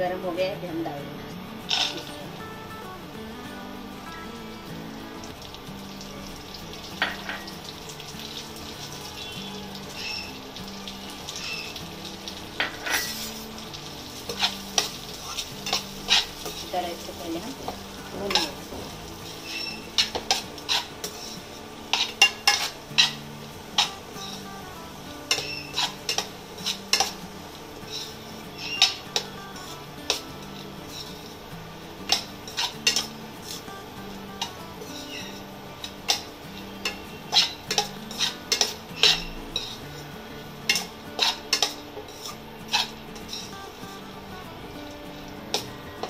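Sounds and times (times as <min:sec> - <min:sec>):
nuts sizzling in hot oil: 0:00.0 - 0:46.0
metal spoon scraping a pan: 0:01.7 - 0:02.2, 0:12.6 - 0:24.5, 0:25.3 - 0:27.3, 0:27.9 - 0:31.4, 0:32.0 - 0:43.8, 0:45.1 - 0:45.8.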